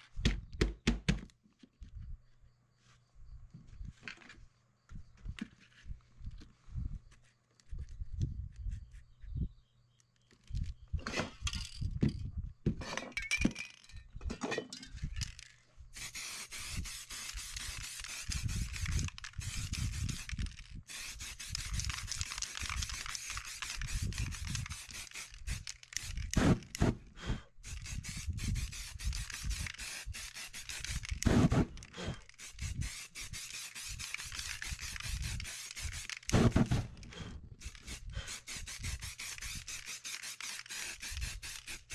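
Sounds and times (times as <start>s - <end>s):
spray paint cans hissing: 15.2s - 27.0s, 27.6s - 41.9s.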